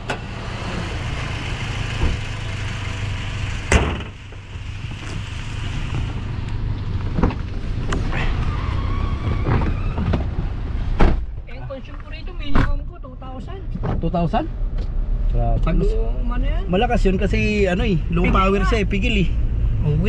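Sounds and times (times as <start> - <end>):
car engine idling: 0.0 - 8.0
car door shutting: 1.9 - 2.3, 3.7 - 4.2, 9.2 - 11.3
car hood slamming: 3.7 - 4.2, 11.0 - 11.3.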